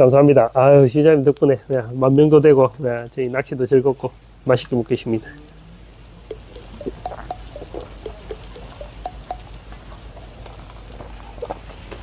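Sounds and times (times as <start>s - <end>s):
food sizzling on charcoal grill: 0.0s - 12.0s
pops and crackles: 5.1s - 12.0s.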